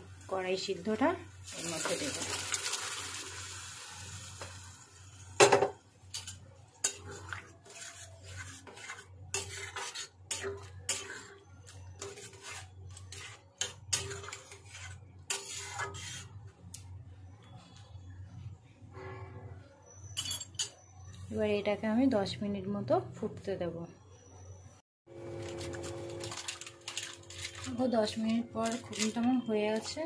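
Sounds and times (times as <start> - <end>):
metal spatula scraping a pan: 6.1 - 16.5, 25.4 - 30.0.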